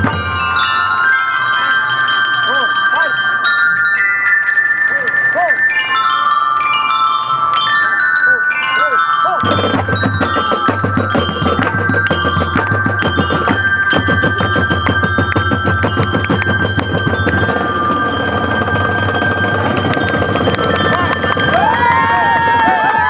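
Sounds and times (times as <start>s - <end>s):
glockenspiel melody: 0.0s - 23.0s
snare and bass drums beat: 9.4s - 18.0s.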